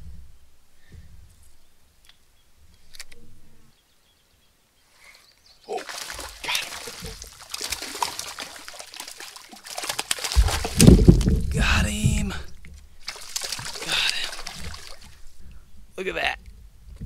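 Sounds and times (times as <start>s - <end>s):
fish splashing at water surface: 5.7s - 11.5s, 13.0s - 15.3s
loud low thud: 10.4s - 12.6s.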